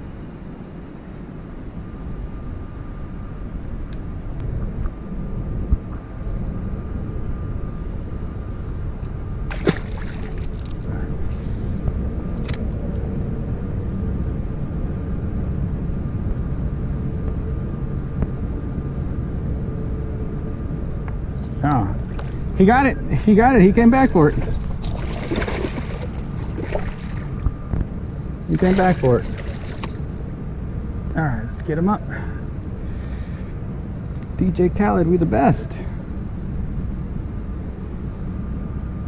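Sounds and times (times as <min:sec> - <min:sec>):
wind buffeting microphone: 0:20.6 - 0:31.1.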